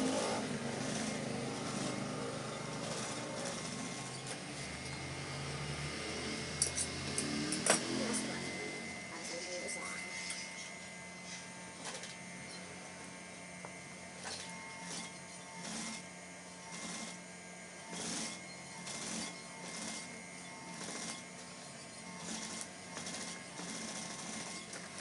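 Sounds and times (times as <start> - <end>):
sewing machine stitching in spurts: 0.0 - 4.8, 14.8 - 16.0, 16.7 - 17.2, 17.9 - 20.1, 20.7 - 21.2, 22.1 - 25.0.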